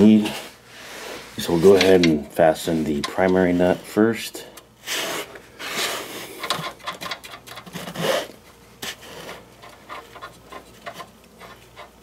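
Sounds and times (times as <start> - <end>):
metal nut clicking and rubbing: 1.5 - 3.5, 6.3 - 8.3, 9.4 - 12.0.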